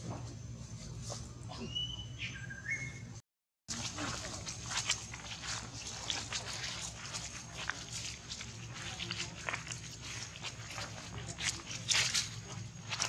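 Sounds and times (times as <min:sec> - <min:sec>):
dry leaf litter crackling: 0:03.7 - 0:13.0.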